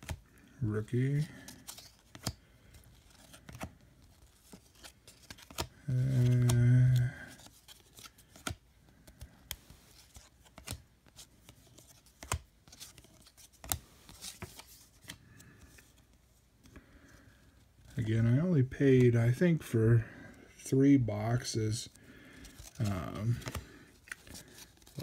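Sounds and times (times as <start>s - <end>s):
cards snapping and clicking: 4.8s - 7.0s, 7.7s - 9.7s, 11.8s - 13.8s
person humming: 5.9s - 7.2s.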